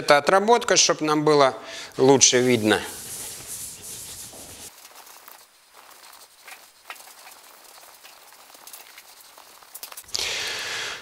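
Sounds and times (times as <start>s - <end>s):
gloved hand rubbing a car panel: 2.3s - 8.4s.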